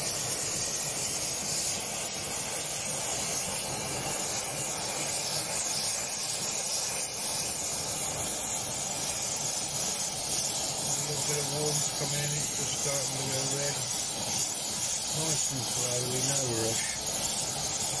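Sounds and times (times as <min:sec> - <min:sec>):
gas torch flame hissing: 0:00.0 - 0:18.0.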